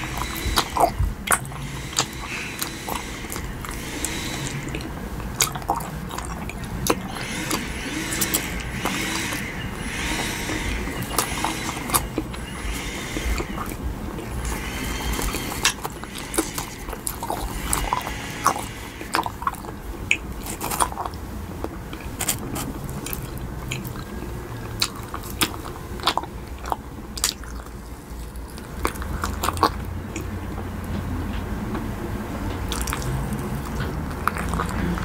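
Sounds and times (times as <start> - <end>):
gummy candy being bitten: 32.7 - 35.0.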